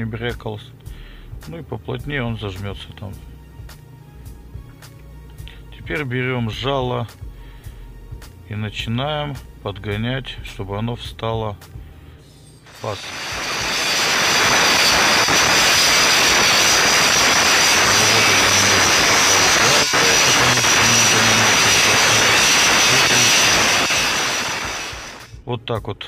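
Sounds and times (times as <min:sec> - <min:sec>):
angle grinder cutting metal: 0:12.7 - 0:25.4.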